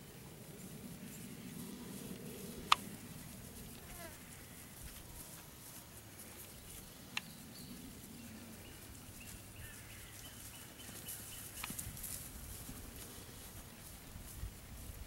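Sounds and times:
sharp clicks: 2.6 - 2.9.

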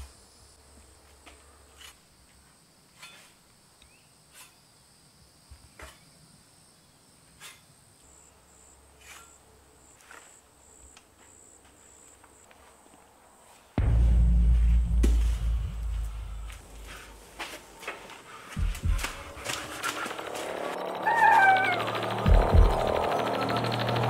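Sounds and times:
crickets trilling: 0.0 - 13.4.

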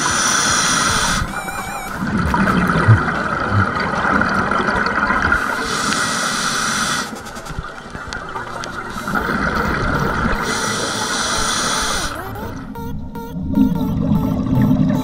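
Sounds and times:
diver breathing through regulator: 0.0 - 2.1, 5.4 - 7.8, 8.9 - 12.5
underwater bubbly exhale: 2.0 - 12.1.

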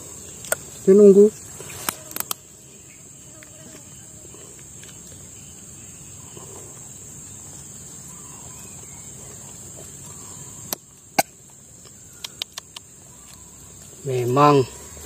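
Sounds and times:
insects chirring: 0.0 - 15.0
sharp clicks: 12.2 - 13.4.

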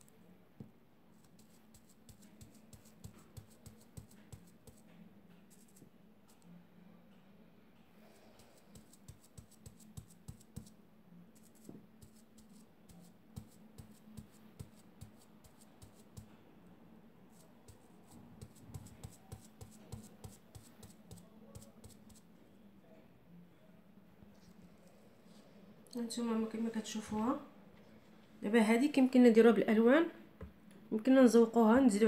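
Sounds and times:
fingers scratching stencil sheet: 1.2 - 4.8, 5.5 - 5.8, 8.3 - 10.7, 11.4 - 16.3, 17.3 - 22.2.

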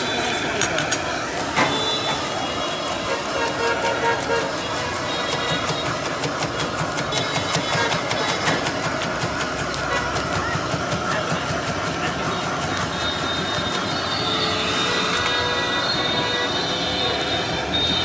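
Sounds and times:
street stall din: 0.0 - 18.0
eggs beaten in steel pan: 4.1 - 14.1.

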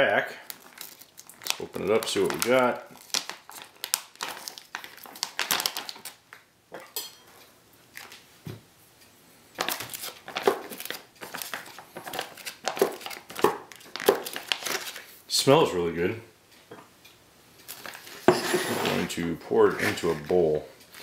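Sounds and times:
foil pouch crinkling: 0.4 - 6.2, 9.6 - 15.1, 17.7 - 18.2.

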